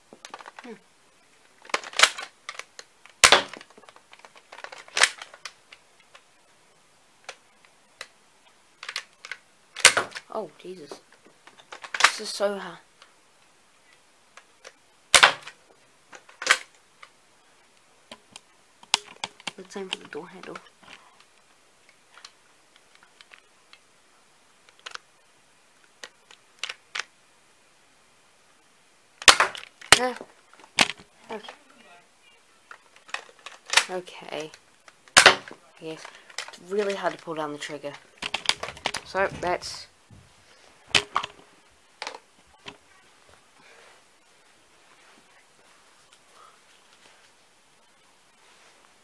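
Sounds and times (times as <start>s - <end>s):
toy blaster plastic snaps: 1.7s - 6.2s, 8.8s - 10.2s, 11.7s - 12.2s, 15.1s - 15.6s, 16.2s - 16.7s, 24.7s - 25.0s, 29.2s - 30.2s, 33.0s - 37.2s.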